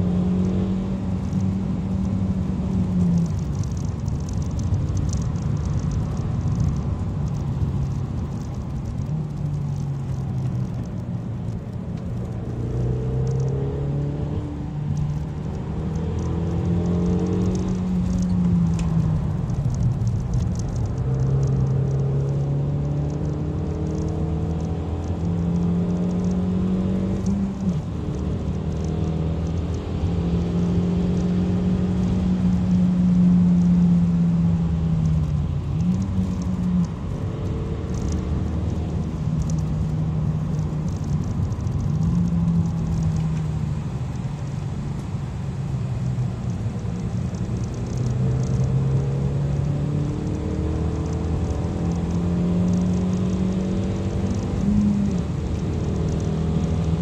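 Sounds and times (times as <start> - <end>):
car engine revving: 0.0 - 57.0
tyre and road noise: 0.0 - 57.0.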